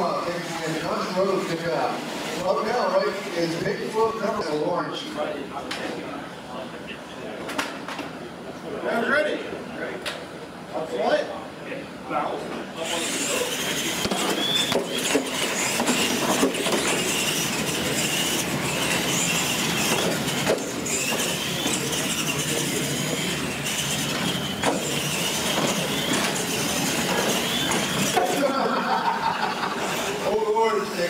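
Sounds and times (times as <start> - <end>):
toy truck motors whining: 12.8 - 31.0.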